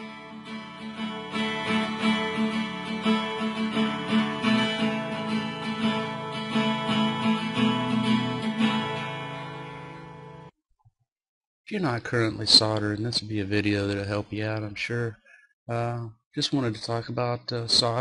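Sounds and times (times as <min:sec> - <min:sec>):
strummed acoustic guitar: 0:00.0 - 0:10.5.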